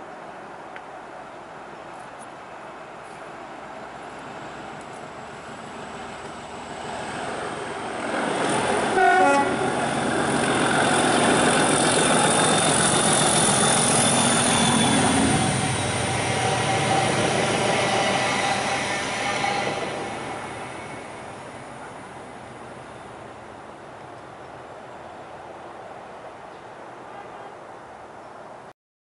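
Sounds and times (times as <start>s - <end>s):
locomotive horn: 8.9s - 9.7s, 14.8s - 21.2s.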